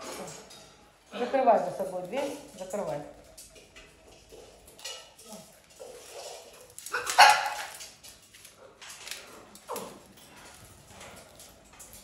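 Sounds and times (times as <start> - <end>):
dog barking: 6.9 - 7.8.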